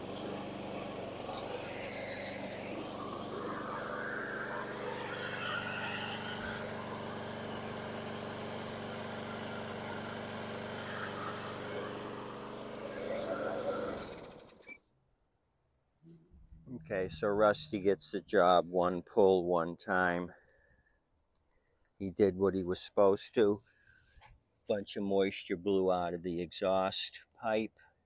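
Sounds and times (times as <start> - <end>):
small mower engine running: 0.0 - 14.8.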